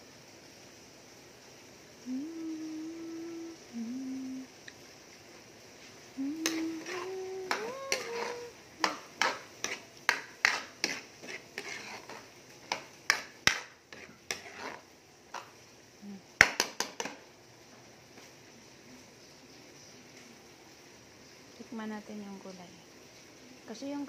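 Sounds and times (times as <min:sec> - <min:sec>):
woman humming: 0:02.0 - 0:04.6, 0:06.2 - 0:09.1, 0:16.0 - 0:16.3
metal ladle scraping a wok: 0:06.4 - 0:15.5.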